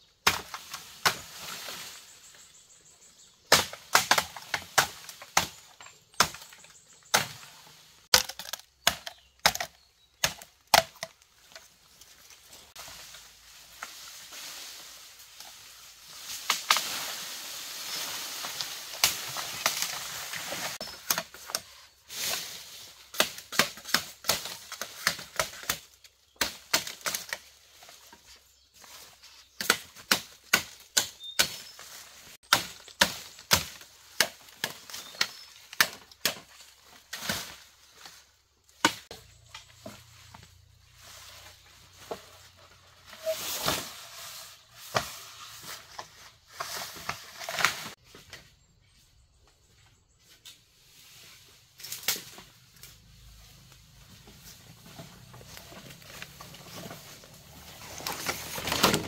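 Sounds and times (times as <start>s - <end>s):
machete chopping bamboo: 0.2s - 1.4s, 3.5s - 7.5s, 8.1s - 11.2s, 23.1s - 27.4s, 29.6s - 31.8s, 32.4s - 37.6s, 38.8s - 39.2s
bamboo leaves rustling: 0.2s - 49.1s, 49.7s - 59.0s.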